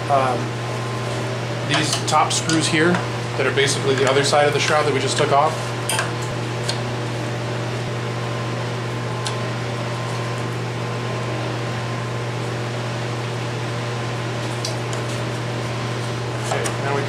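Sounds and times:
machine humming and hissing: 0.0 - 17.0.

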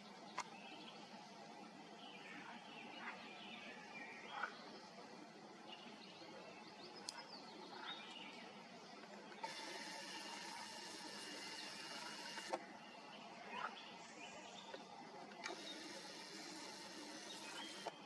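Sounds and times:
camera zoom motor whirring: 9.4 - 12.6, 15.4 - 18.0.

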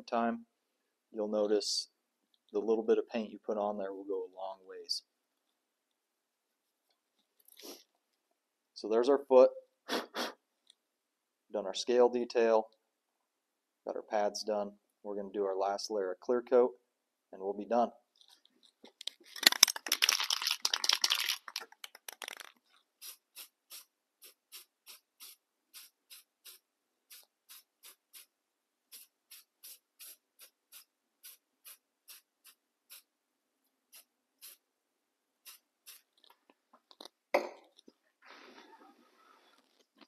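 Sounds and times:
aerosol can spraying in puffs: 7.6 - 7.8, 23.0 - 28.3, 28.9 - 33.1, 33.9 - 34.6, 35.4 - 36.1
aerosol can rattling: 19.0 - 28.3, 35.5 - 36.2.

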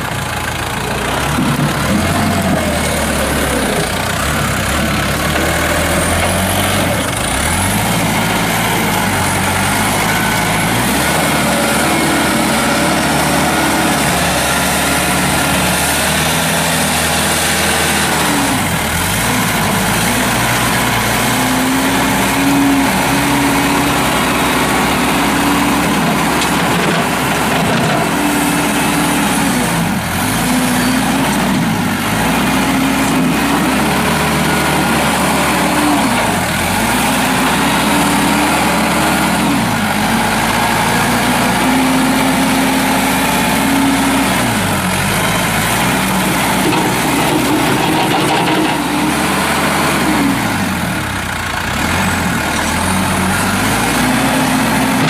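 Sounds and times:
tractor diesel engine running: 0.0 - 55.0
loader digging into dirt: 0.6 - 55.0.

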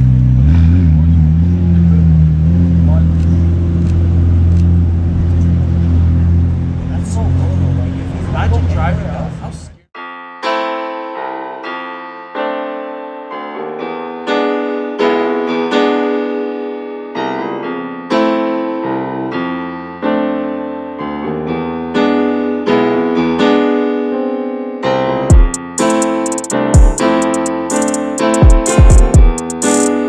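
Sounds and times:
piano music: 10.0 - 30.0.

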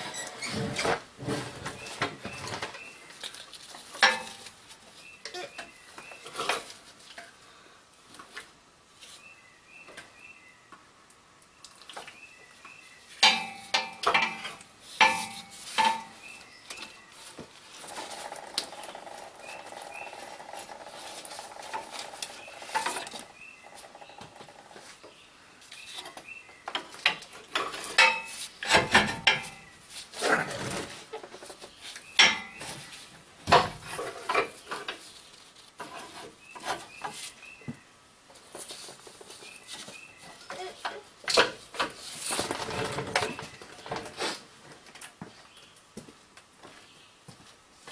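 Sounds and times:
metal lines clinking and scraping: 0.0 - 5.6, 13.2 - 17.0, 26.8 - 32.9, 33.5 - 37.3.

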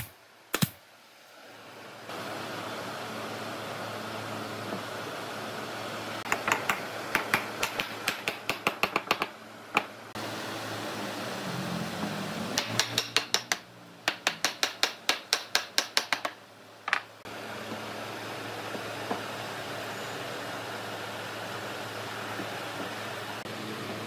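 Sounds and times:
hammer tapping on wood: 6.3 - 9.9, 12.6 - 17.0.

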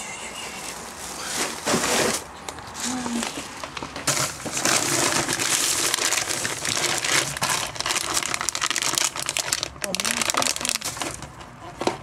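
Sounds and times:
plastic bag and wrappers crinkling: 0.4 - 12.0.

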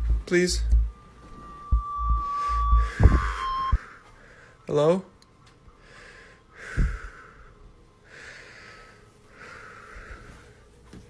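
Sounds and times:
dull low thump: 0.0 - 1.0, 1.7 - 3.8
person breathing hard: 5.8 - 10.8.

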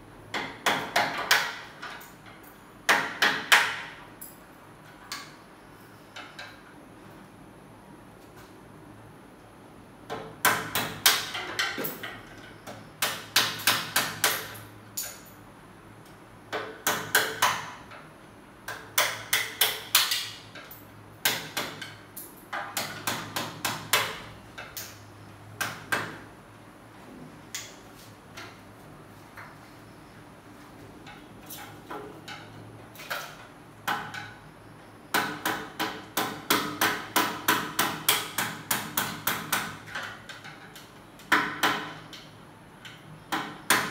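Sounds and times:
hammer striking metal frame: 0.3 - 2.1, 2.9 - 4.2, 10.1 - 15.3, 16.5 - 18.0, 18.7 - 24.9, 35.1 - 42.1.

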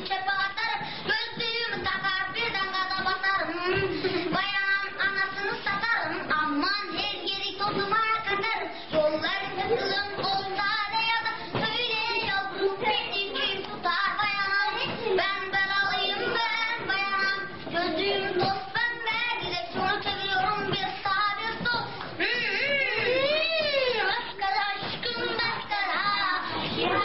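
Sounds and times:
music with childlike singing: 0.0 - 27.0.

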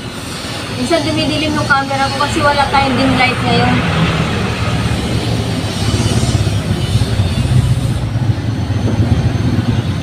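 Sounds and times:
rough motor rumble: 1.1 - 10.0
faint high whine: 4.4 - 10.0.

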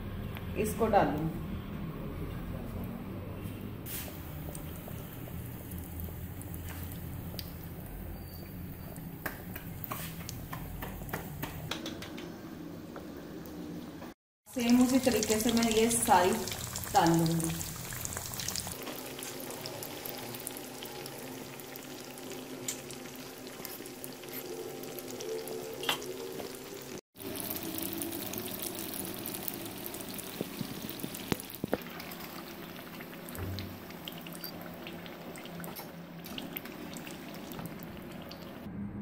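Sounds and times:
food deep-frying in oil: 3.9 - 10.5, 14.5 - 38.7.

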